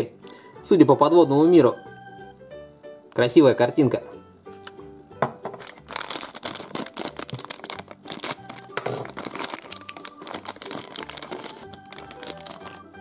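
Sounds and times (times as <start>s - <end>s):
plastic wrapper crinkling and tearing: 5.6s - 13.0s.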